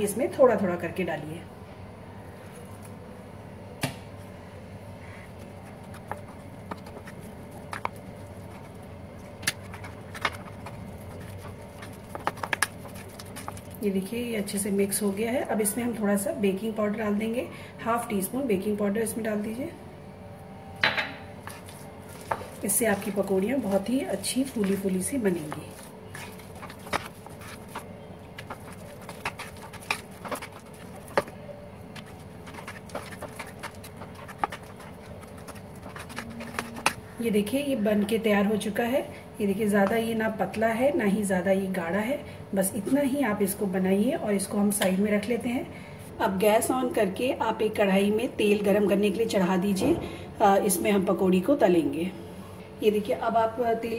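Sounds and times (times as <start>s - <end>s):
steady low hum: 0.0s - 53.9s
hand mixing wet batter: 5.0s - 15.4s, 21.3s - 43.1s.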